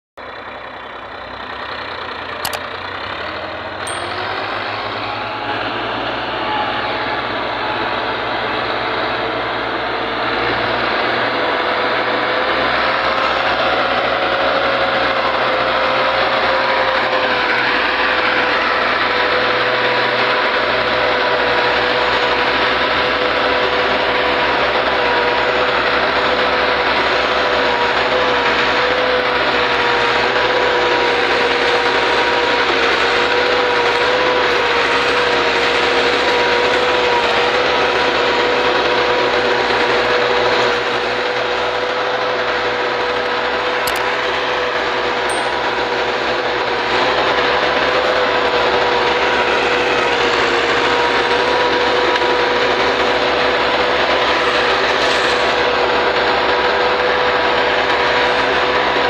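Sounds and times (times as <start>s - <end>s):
tractor diesel engine running: 0.2s - 59.0s
high whine: 3.9s - 8.8s, 45.3s - 46.7s.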